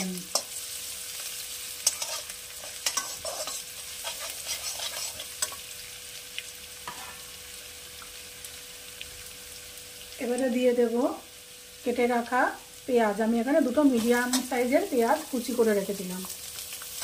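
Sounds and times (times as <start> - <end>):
garlic sizzling in hot oil: 0.0 - 17.0
metal spatula scraping pan: 1.8 - 5.6, 6.9 - 7.3.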